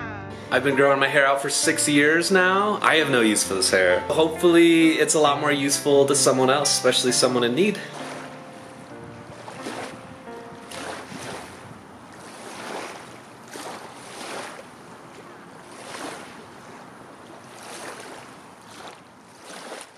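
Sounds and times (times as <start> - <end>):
waves lapping on pebble beach: 7.2 - 10.0, 10.6 - 19.9.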